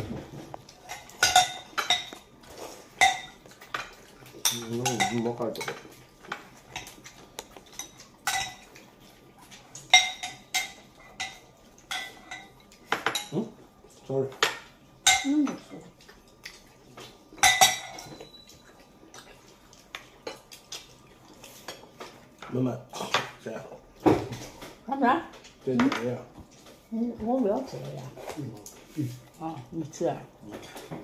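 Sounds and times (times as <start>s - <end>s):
utensils clinking against dishes: 0.8s - 8.8s, 9.8s - 13.6s, 14.3s - 15.7s, 17.4s - 18.8s.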